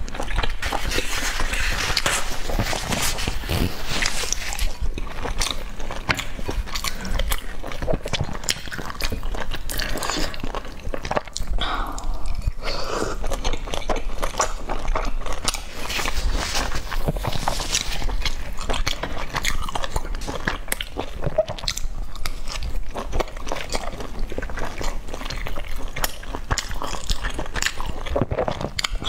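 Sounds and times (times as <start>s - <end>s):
chewing and lip-smacking: 0.0s - 29.0s.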